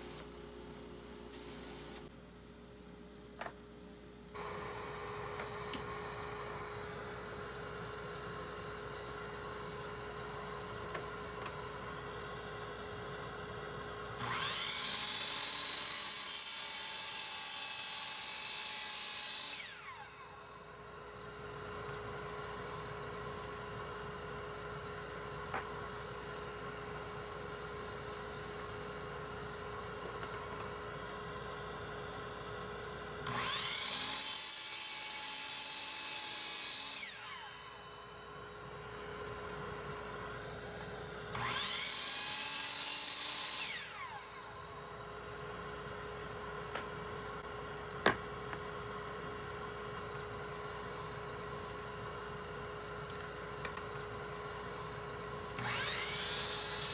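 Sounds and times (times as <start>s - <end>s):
saw blade cutting wood: 14.2s - 20.4s, 33.2s - 38.0s, 40.8s - 44.6s, 55.6s - 56.9s
miter saw motor whine: 14.2s - 22.9s, 33.2s - 47.4s, 55.4s - 56.9s.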